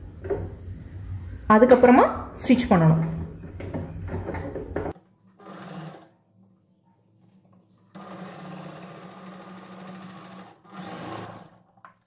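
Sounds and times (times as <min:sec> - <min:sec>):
sewing machine stitching: 0:05.4 - 0:06.2, 0:07.9 - 0:12.0.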